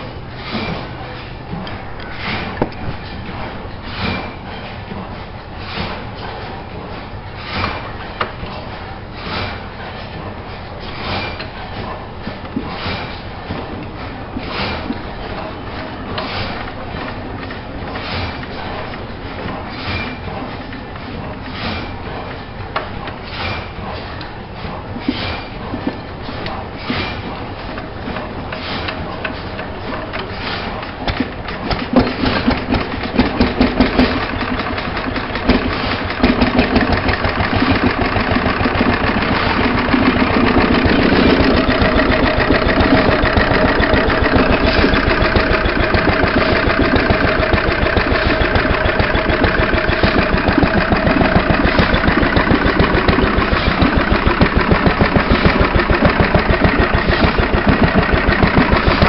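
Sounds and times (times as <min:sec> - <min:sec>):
stationary engine starting and running: 0:31.1 - 0:59.0.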